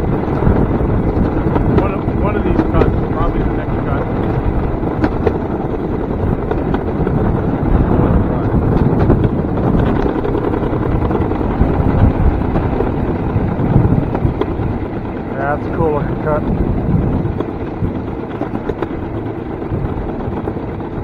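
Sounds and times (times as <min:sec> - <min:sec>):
railcart wheels rumbling on rails: 0:00.0 - 0:21.0
wind buffeting microphone: 0:00.0 - 0:21.0.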